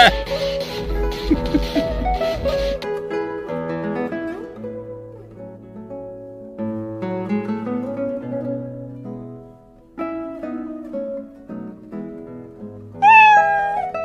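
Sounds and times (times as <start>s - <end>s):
loud high cry sliding down: 0.0s - 0.8s, 13.0s - 14.0s
acoustic guitar plucked melody: 0.0s - 14.0s.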